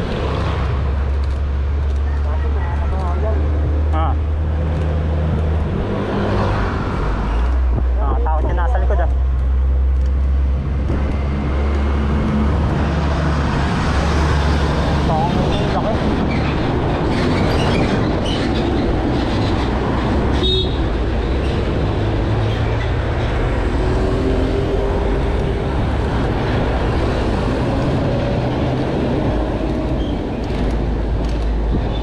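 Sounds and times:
bicycle road noise: 0:00.0 - 0:32.0
wind on microphone: 0:10.1 - 0:32.0.

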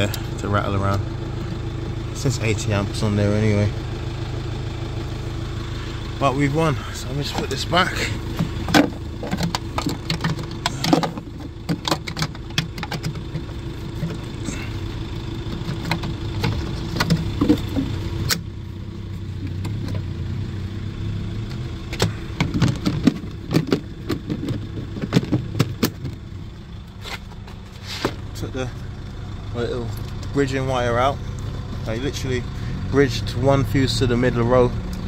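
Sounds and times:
van engine idling: 0:00.0 - 0:35.0
plastic panels clicking and knocking: 0:08.4 - 0:14.2, 0:15.5 - 0:17.9, 0:22.0 - 0:26.2.

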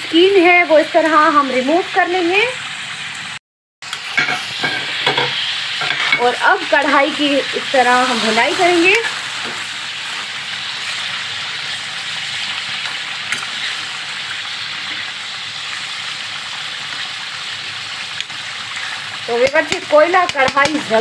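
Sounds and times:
curry sizzling and bubbling: 0:00.0 - 0:21.0
metal spoon scraping pan: 0:04.2 - 0:07.0.

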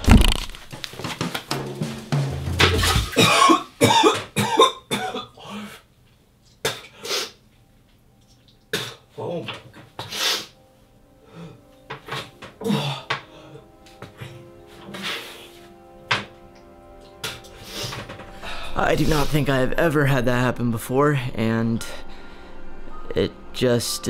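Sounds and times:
man retching: 0:02.8 - 0:05.6, 0:12.0 - 0:13.3
man coughing: 0:03.1 - 0:05.6.

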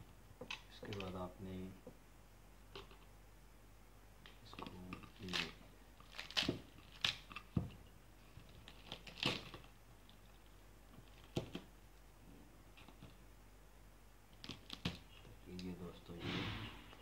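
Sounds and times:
pomegranate rind cracking and tearing: 0:04.5 - 0:07.6, 0:08.4 - 0:10.4.

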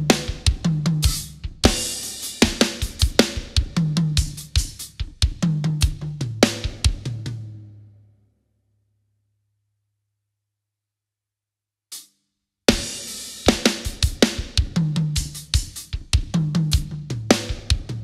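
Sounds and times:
drum kit fills: 0:00.0 - 0:07.7, 0:12.7 - 0:18.0.

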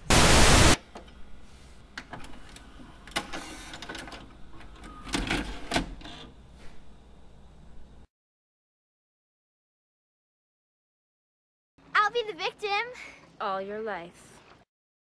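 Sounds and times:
burst of tv static: 0:00.0 - 0:00.8.

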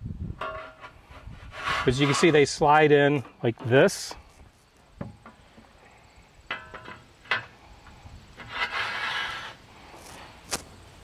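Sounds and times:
metal frame scraping: 0:00.4 - 0:04.4, 0:06.5 - 0:10.2.

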